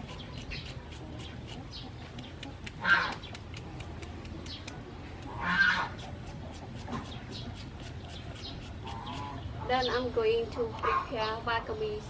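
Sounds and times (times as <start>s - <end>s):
knife chopping cucumber: 0.0s - 9.3s.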